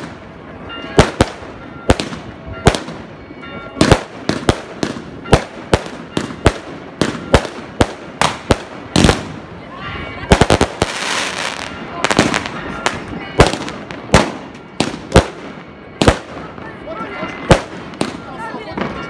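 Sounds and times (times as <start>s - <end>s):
fireworks bursting: 3.8s - 19.0s.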